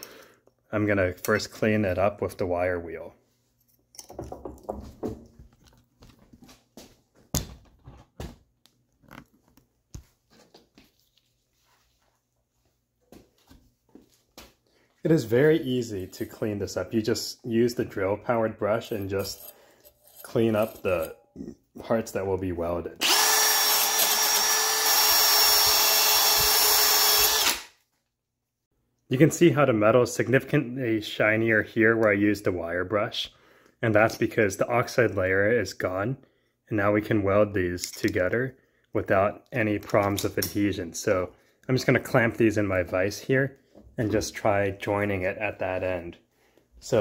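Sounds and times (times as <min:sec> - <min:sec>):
tools and metal clattering: 0:03.6 - 0:05.8
drill wire brush whining on metal: 0:23.0 - 0:27.7.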